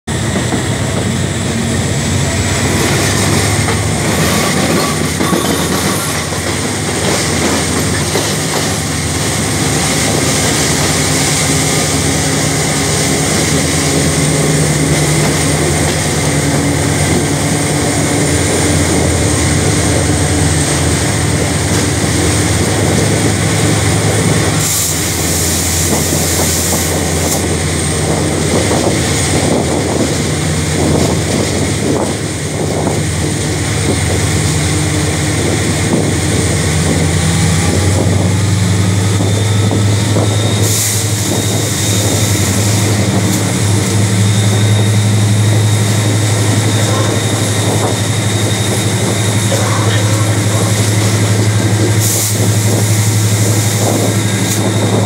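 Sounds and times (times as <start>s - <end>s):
wind: 0.0s - 55.0s
train wheels rumbling on rails: 0.1s - 55.0s.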